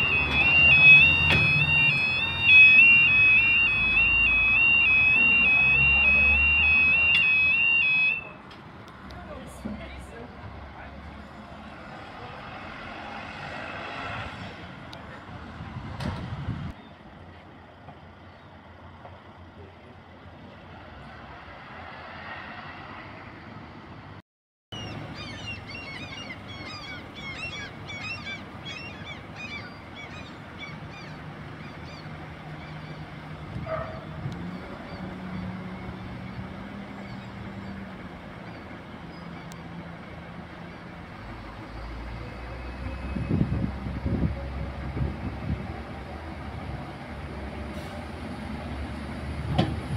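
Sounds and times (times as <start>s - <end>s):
low steady engine drone: 0.0s - 13.2s, 24.8s - 49.9s
road traffic passing: 0.0s - 49.9s
high bird chirps: 24.7s - 33.0s.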